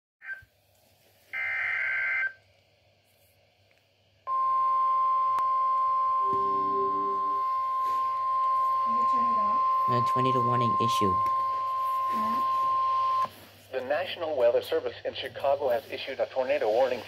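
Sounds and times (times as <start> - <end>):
steady warning alarm tone: 4.3 - 13.3
buzzy data tones: 6.2 - 13.3.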